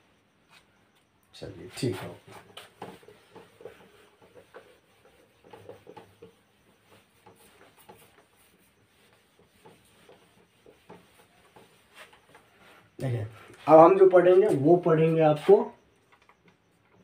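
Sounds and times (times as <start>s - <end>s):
eraser rubbing whiteboard: 1.8s - 12.9s.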